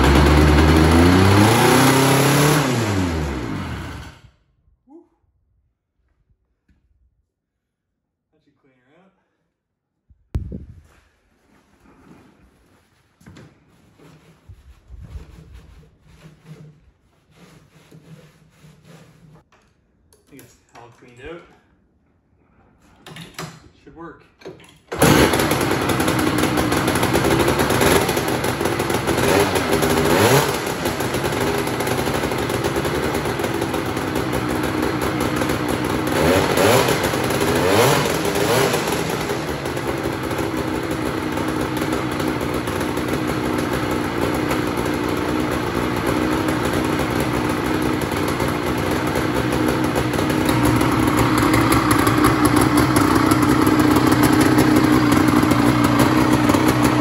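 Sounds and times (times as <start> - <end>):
snowmobile engine revving and idling: 0.0 - 4.3, 25.0 - 57.0.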